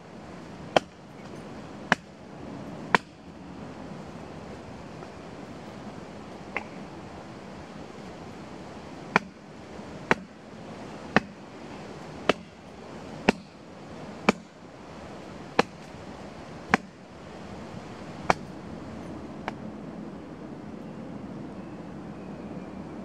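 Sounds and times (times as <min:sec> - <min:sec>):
steady background hiss: 0:00.0 - 0:23.0
hatchet striking tree stump: 0:00.7 - 0:01.0, 0:01.9 - 0:02.1, 0:02.9 - 0:03.2, 0:06.6 - 0:06.8, 0:09.1 - 0:09.4, 0:10.1 - 0:10.4, 0:11.1 - 0:11.4, 0:12.2 - 0:12.6, 0:13.2 - 0:13.6, 0:14.2 - 0:14.5, 0:15.6 - 0:15.9, 0:16.7 - 0:16.9, 0:18.2 - 0:18.5.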